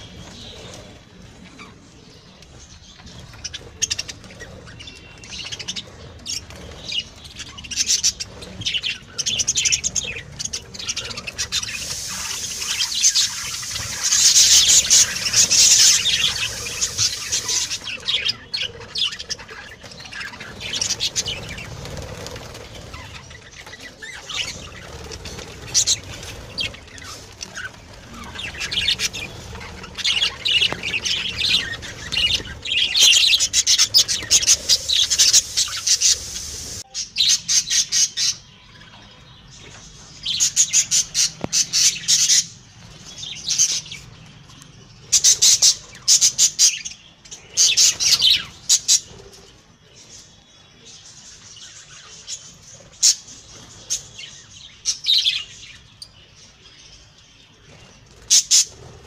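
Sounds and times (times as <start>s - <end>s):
budgerigars chirping: 3.0s - 38.4s.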